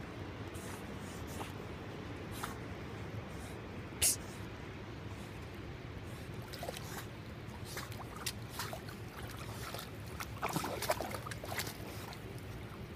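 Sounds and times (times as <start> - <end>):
dog splashing in water: 6.4 - 7.0, 7.6 - 12.8.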